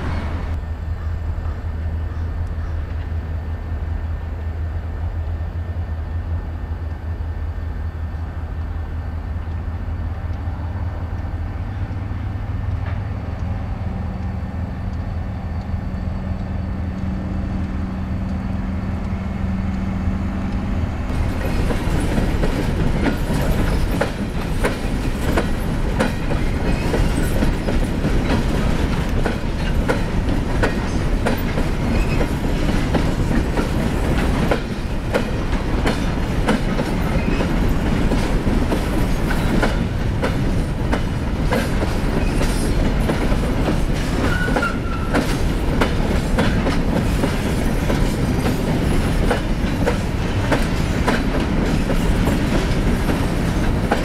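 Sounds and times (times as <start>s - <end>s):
freight train rumbling: 0.0s - 54.0s
wheels clicking over rail joints: 20.5s - 54.0s.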